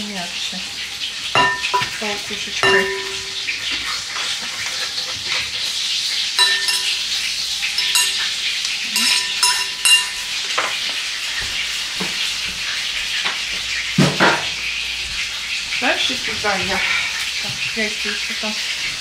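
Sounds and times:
cutlets sizzling in a frying pan: 0:00.0 - 0:19.0
masher clinking against bowl: 0:01.4 - 0:02.0, 0:02.6 - 0:03.6, 0:06.4 - 0:10.4.

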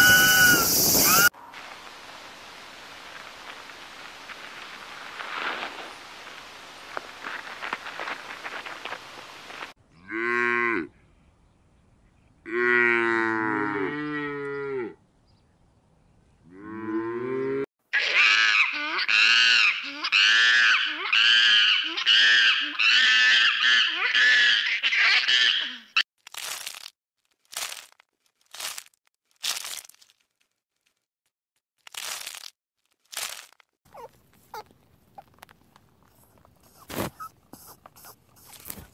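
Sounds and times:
high-pitched animal calls: 0:00.0 - 0:01.3, 0:18.0 - 0:26.0, 0:33.9 - 0:35.3
cow mooing: 0:12.5 - 0:15.0.

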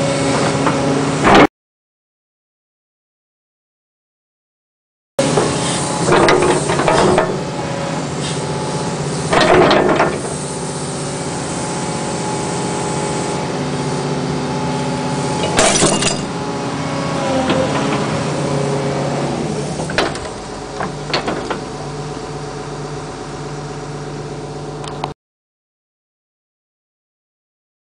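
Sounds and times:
diesel engine running: 0:00.0 - 0:01.4, 0:05.2 - 0:25.1.

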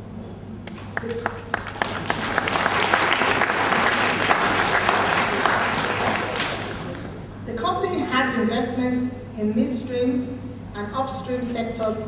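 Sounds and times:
audience applauding: 0:00.7 - 0:07.2.

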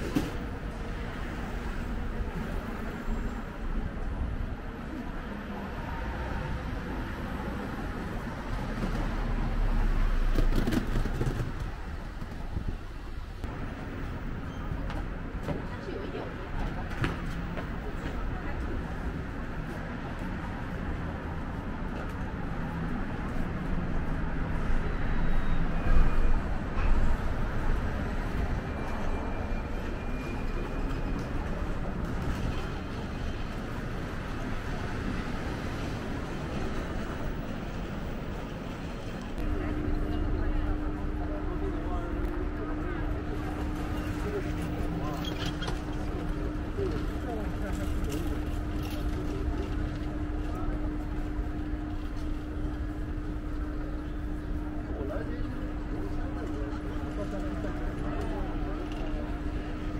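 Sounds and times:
traffic rumble: 0:00.0 - 0:59.9
constant mid-pitched hum: 0:39.3 - 0:59.9.

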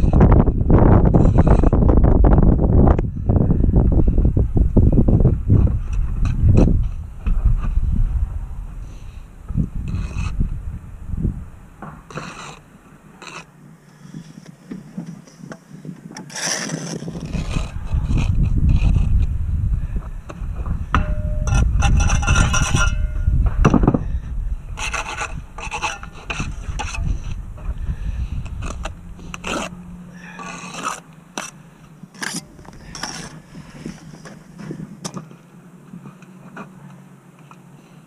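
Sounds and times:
wind rumble on microphone: 0:00.0 - 0:13.0, 0:13.6 - 0:36.2
trowel scraping mortar: 0:09.8 - 0:10.4, 0:12.0 - 0:13.5, 0:16.1 - 0:19.3, 0:21.0 - 0:23.2, 0:24.7 - 0:34.8.

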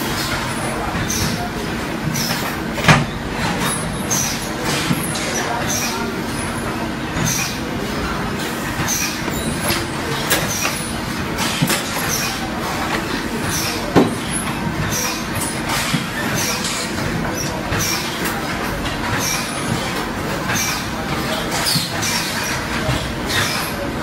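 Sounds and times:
continuous mechanical noise: 0:00.0 - 0:24.0.

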